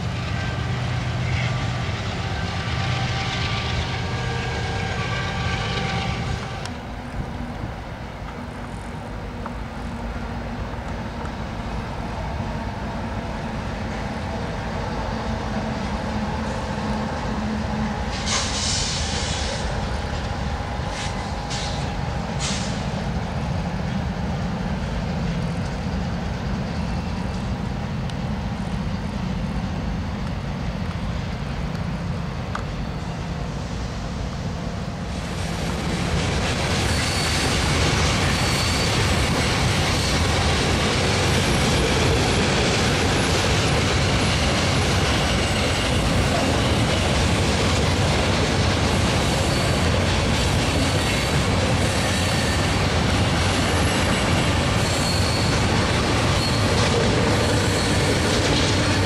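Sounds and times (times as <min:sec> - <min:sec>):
freight train rolling clatter: 0:00.0 - 0:59.0
wheel squeal: 0:36.6 - 0:40.6, 0:49.1 - 0:50.1, 0:50.7 - 0:59.0.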